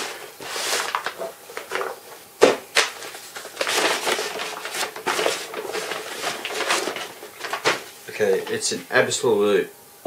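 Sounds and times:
package wrapping crinkling: 0.0 - 7.9.

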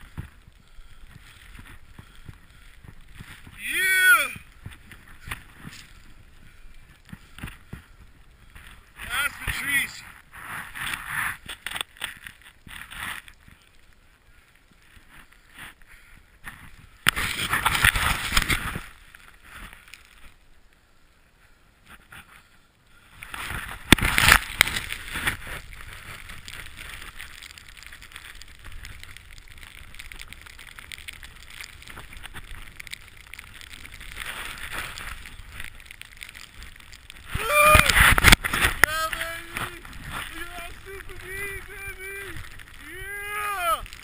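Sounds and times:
snowboard rushing through snow: 3.0 - 6.3, 17.1 - 19.8, 23.2 - 44.0.

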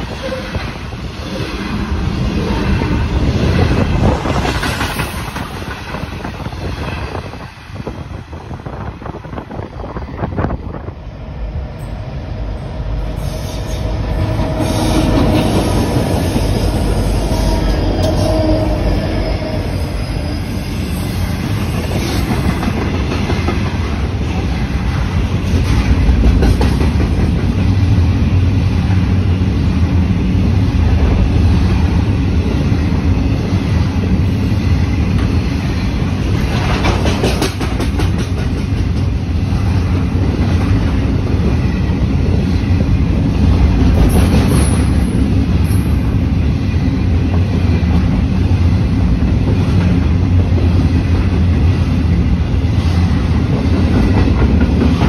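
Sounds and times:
freight train rumbling past: 0.0 - 55.0
wheels clacking over rails: 36.3 - 39.3.

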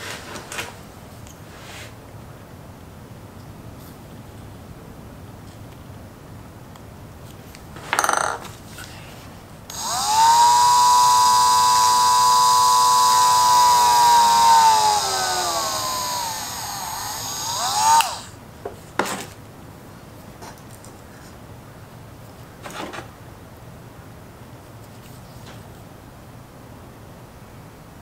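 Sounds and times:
rotary tool whining: 9.7 - 18.4.

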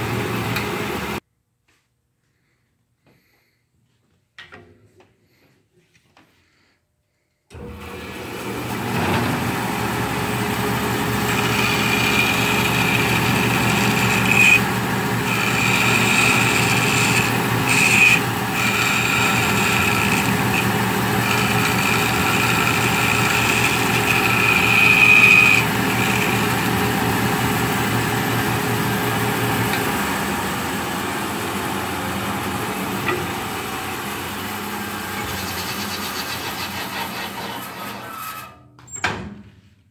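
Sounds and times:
band saw cutting wood: 8.0 - 38.5.

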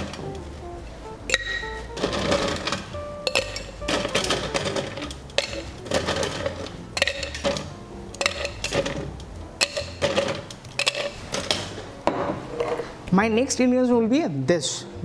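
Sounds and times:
soft background music: 0.0 - 15.0
ice and metal clinking on shaker tins: 1.3 - 9.0.

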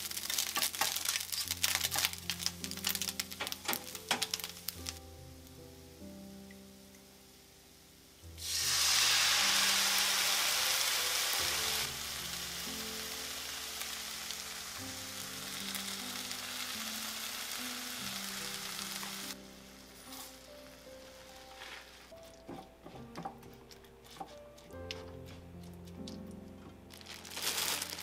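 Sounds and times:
frying pan sizzling: 0.0 - 5.0, 8.4 - 22.2, 27.0 - 28.0.

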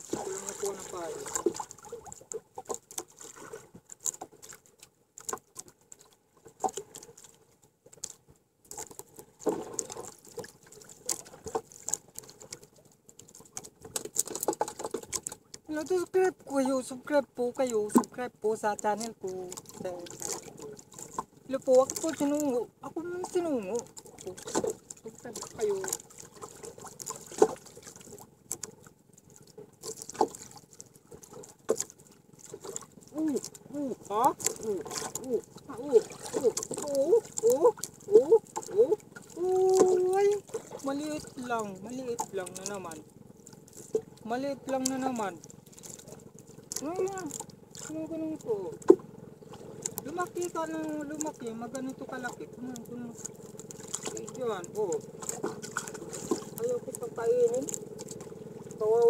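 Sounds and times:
water splash: 0.0 - 59.0
waves slapping against canoe hull: 0.0 - 59.0
sharp slaps on boat: 25.6 - 28.8.

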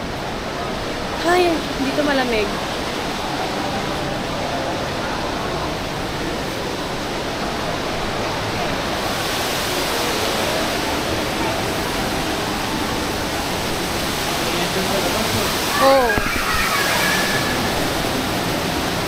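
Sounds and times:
shopping mall hubbub: 1.1 - 19.0.

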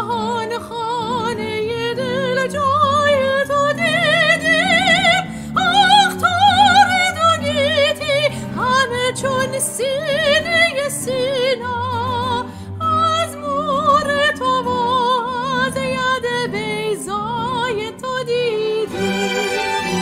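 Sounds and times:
sustained instrumental accompaniment: 18.8 - 20.0.

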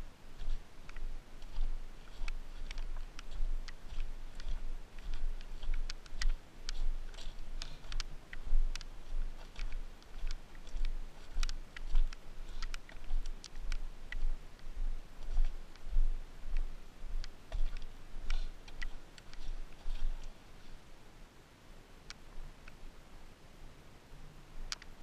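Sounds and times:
stones and gravel clicking: 0.4 - 14.4.

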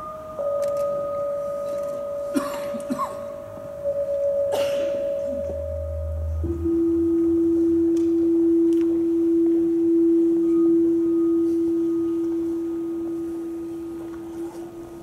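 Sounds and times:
fainter higher tone: 0.0 - 2.4, 3.2 - 15.0
sustained pure tone: 0.0 - 15.0
low hum: 3.3 - 14.5.

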